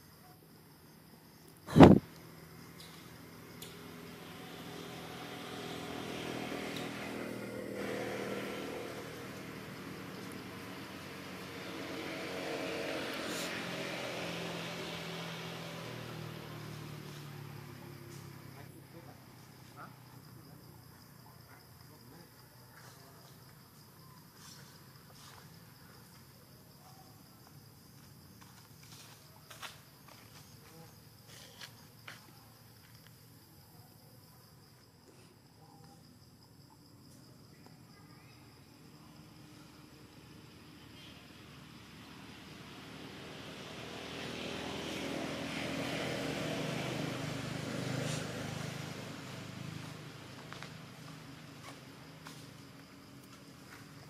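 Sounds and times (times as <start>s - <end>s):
insects chirring: 0.0s - 54.0s
passing vehicle engine hum: 1.7s - 21.2s, 38.7s - 54.0s.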